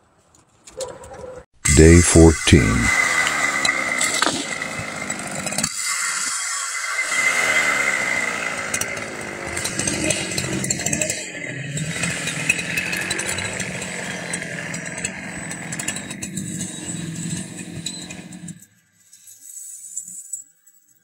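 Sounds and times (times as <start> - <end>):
chainsaw running: 2.9 - 18.5.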